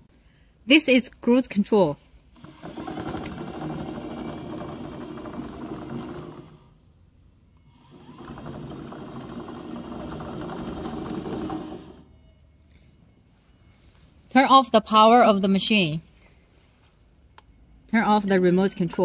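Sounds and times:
toy tracked vehicle motor whirring: 2.4s - 6.8s, 7.7s - 12.1s.

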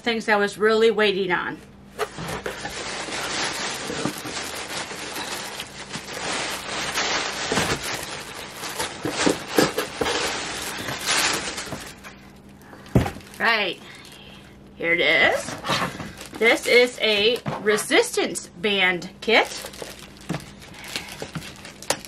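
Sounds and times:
plastic packaging crinkling: 2.0s - 14.4s, 15.6s - 17.5s, 19.2s - 22.0s.

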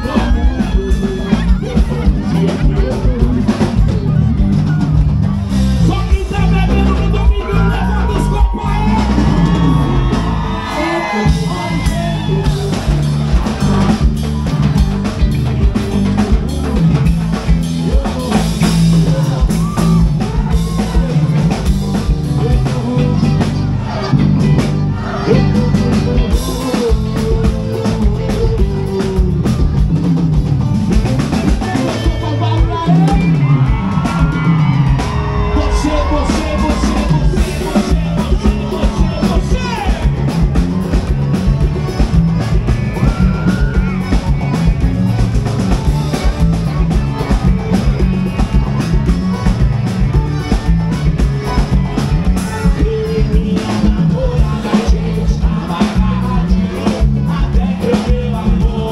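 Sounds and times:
person singing: 0.0s - 4.9s, 5.8s - 15.2s, 16.0s - 42.2s, 51.0s - 58.9s
drum kit: 0.0s - 58.9s
guitars: 0.0s - 58.9s
live band playing: 0.0s - 58.9s.

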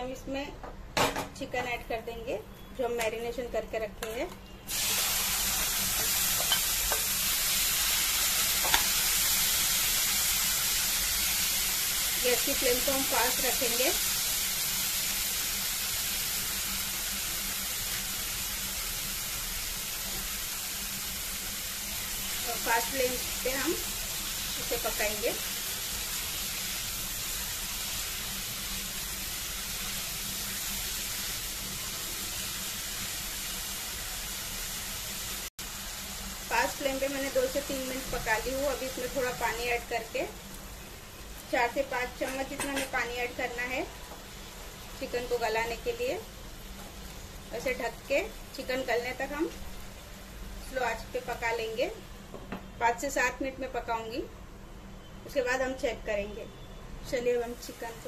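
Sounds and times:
chicken sizzling in oil: 4.7s - 52.3s, 57.0s - 58.0s
utensil tapping pan: 42.2s - 43.0s.

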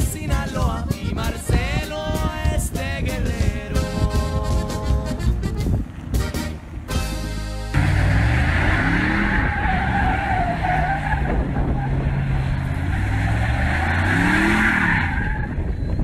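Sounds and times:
tyres skidding: 0.0s - 16.0s
car engine revving: 5.0s - 16.0s.

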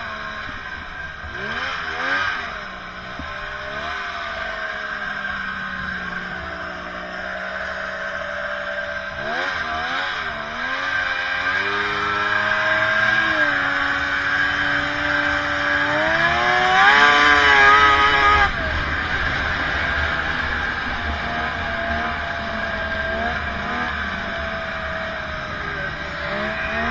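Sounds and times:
snowmobile engine revving: 0.0s - 26.9s.

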